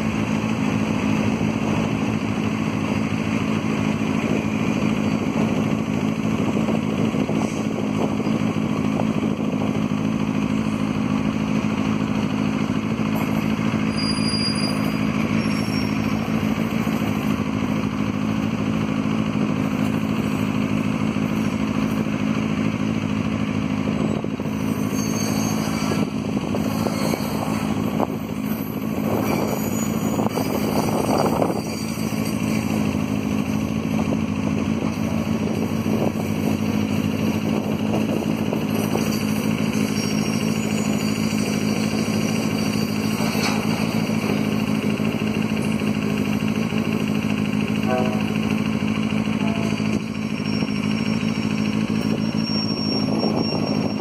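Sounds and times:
diesel locomotive engine drone: 0.0s - 54.0s
train wheel and coupling clatter: 37.5s - 54.0s.

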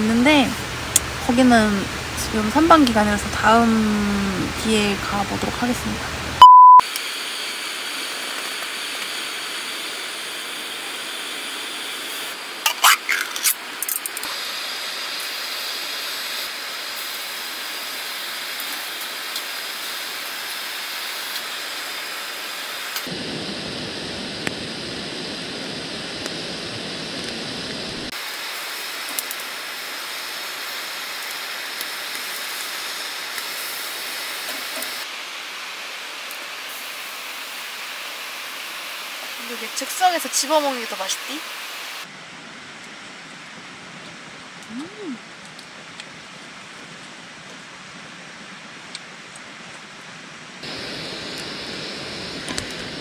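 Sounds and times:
food sizzling on a grill: 6.9s - 42.1s.

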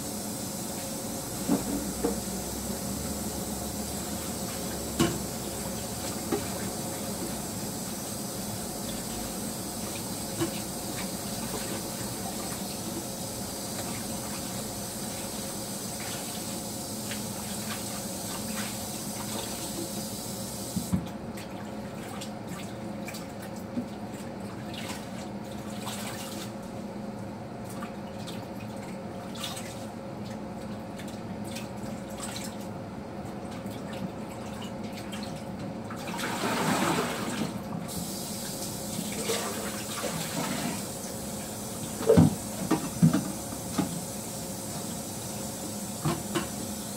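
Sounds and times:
steady hum: 0.0s - 12.5s
tap water running into sink: 41.8s - 44.1s.

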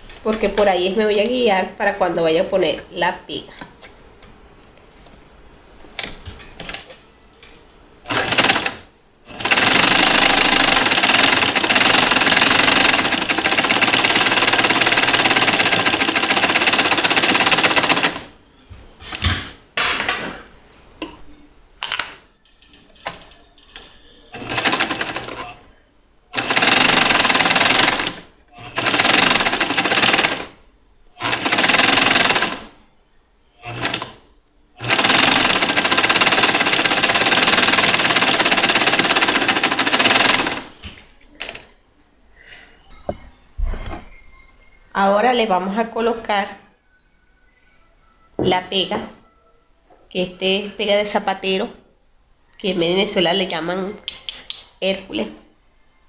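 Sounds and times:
electric sewing machine stitching: 8.1s - 18.3s, 24.4s - 25.6s, 26.4s - 30.6s, 31.2s - 32.7s, 33.6s - 34.2s, 34.8s - 40.7s.

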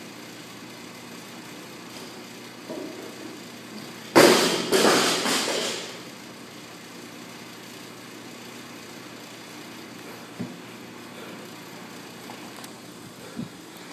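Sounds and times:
barbell slamming on rubber floor: 4.2s - 6.0s.

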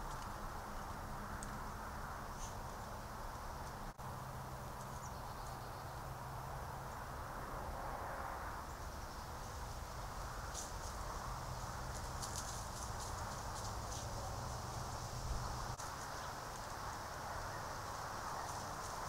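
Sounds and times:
microphone hiss and hum: 0.0s - 19.0s
footsteps in dry leaves: 10.4s - 19.0s.

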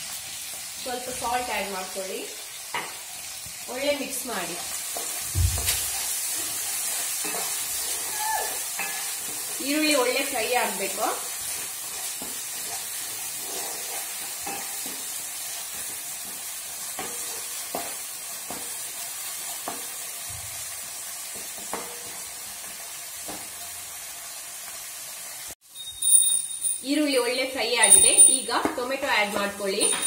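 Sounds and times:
onions sizzling in hot oil: 0.0s - 25.6s, 26.9s - 30.0s
wooden spatula scraping pan: 4.9s - 18.0s.

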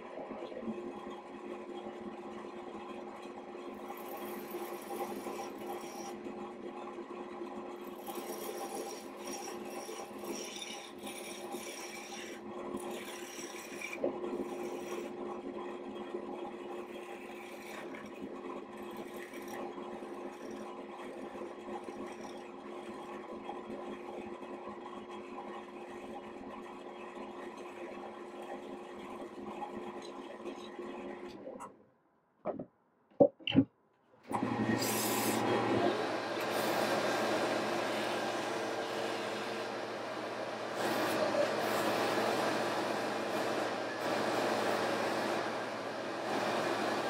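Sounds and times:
wood lathe humming: 3.4s - 23.8s, 34.3s - 47.0s
tool scraping spinning wood: 3.4s - 24.4s, 34.3s - 47.0s.

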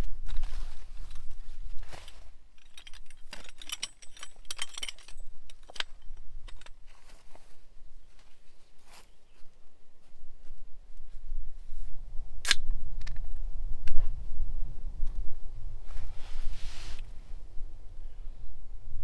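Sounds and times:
light metallic clinks and rattles: 1.9s - 7.2s.

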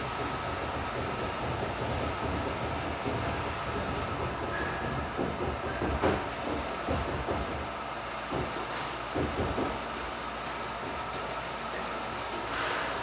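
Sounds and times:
printing press mechanical rumble: 0.0s - 13.0s
machine knocks: 0.2s - 7.7s, 8.3s - 9.8s.

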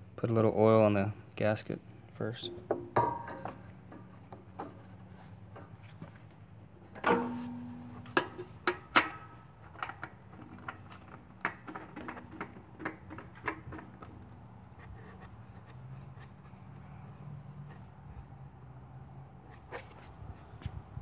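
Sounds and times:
oil filter clicks and knocks: 2.5s - 14.6s.

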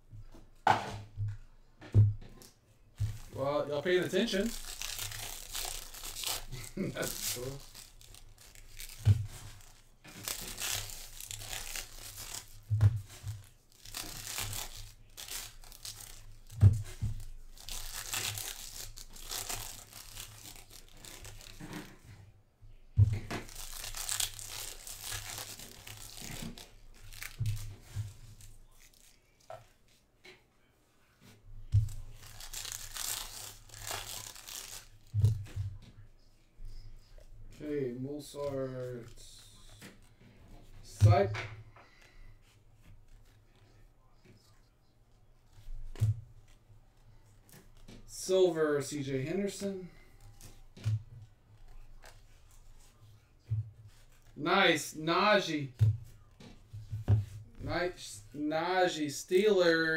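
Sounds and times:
foil packs tearing and crinkling: 3.0s - 22.0s, 23.4s - 29.3s, 31.9s - 35.1s.

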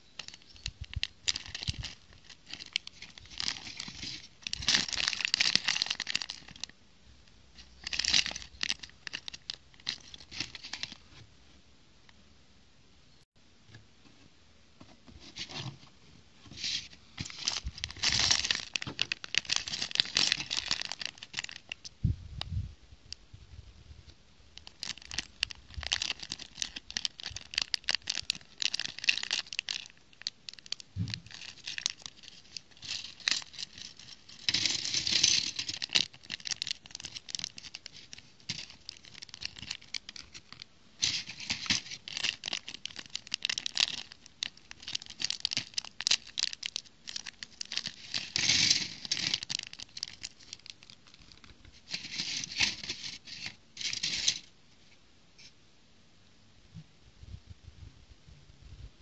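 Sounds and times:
plastic bags crinkling and tearing: 0.0s - 6.7s, 7.6s - 11.0s, 16.5s - 21.9s, 24.6s - 54.5s
plastic bricks clicking and rattling: 41.0s - 50.8s.

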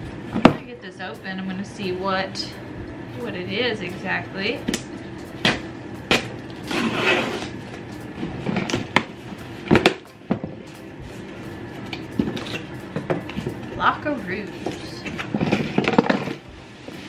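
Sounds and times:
cardboard scraping: 6.6s - 9.6s, 14.7s - 17.0s.

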